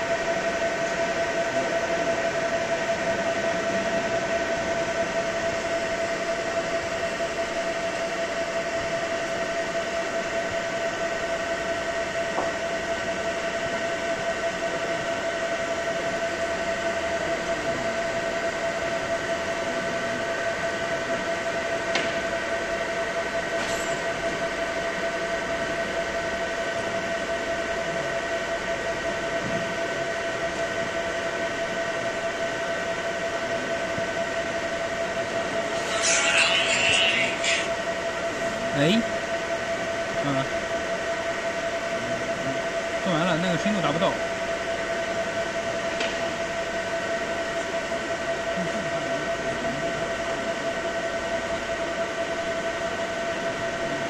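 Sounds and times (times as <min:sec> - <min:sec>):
constant high whine: 0:00.0 - 0:54.0
laser marking machine whirring: 0:35.2 - 0:39.0.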